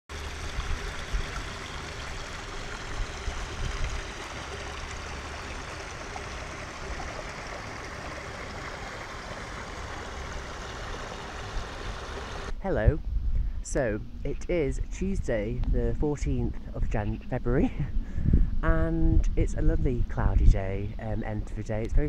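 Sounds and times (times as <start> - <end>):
stream trickling over stones: 0.1 - 12.5
low rumbling: 0.1 - 22.0.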